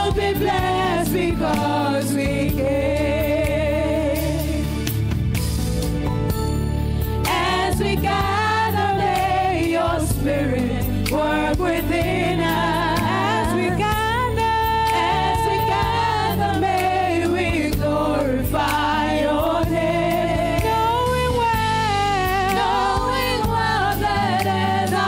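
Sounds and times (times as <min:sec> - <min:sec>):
woman singing into a microphone: 0:00.0 - 0:04.7, 0:07.3 - 0:25.0
instrumental backing music: 0:00.0 - 0:25.0.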